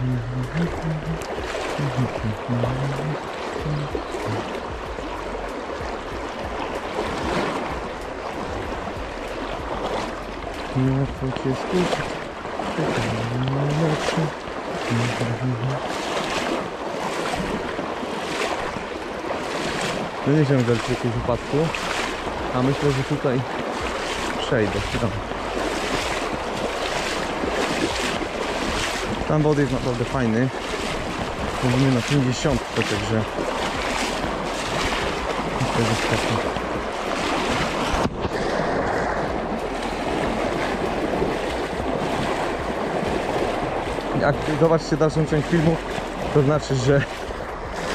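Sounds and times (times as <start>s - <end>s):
man's low voice: 0.0s - 5.0s, 10.7s - 15.9s, 20.2s - 23.5s, 24.2s - 25.4s, 29.0s - 33.4s, 35.2s - 36.7s, 44.0s - 47.5s
river water rushing: 0.0s - 47.9s.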